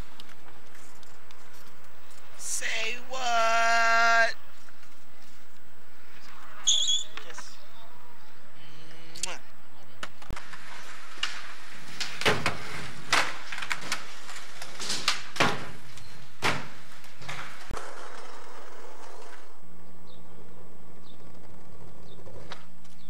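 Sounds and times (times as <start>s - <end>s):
skateboard wooden knocks and clacks: 10.0s - 19.6s, 20.8s - 23.0s.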